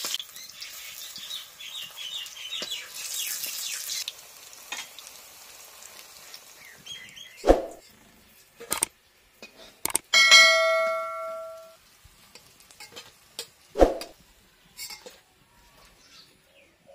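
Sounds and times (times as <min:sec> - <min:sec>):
metal dish ringing: 0:10.2 - 0:11.8.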